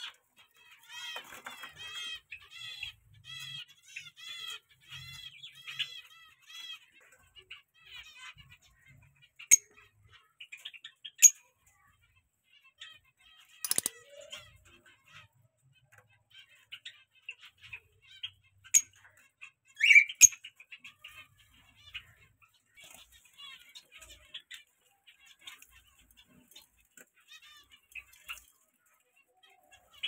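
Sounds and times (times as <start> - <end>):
pet birds chirping: 0.0 - 30.0
loud bird calls: 12.8 - 26.7.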